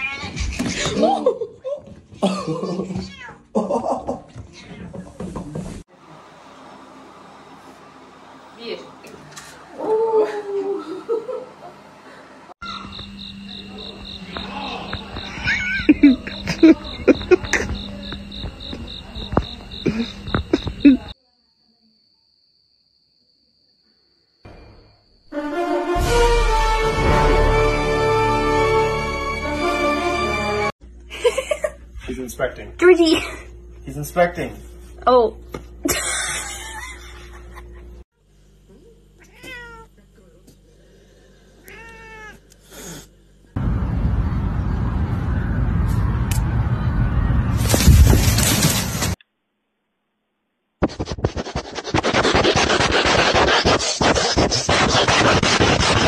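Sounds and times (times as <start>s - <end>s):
cat meowing: 3.0s - 3.4s, 39.2s - 39.9s, 41.6s - 42.5s
crickets chirping: 12.6s - 25.4s.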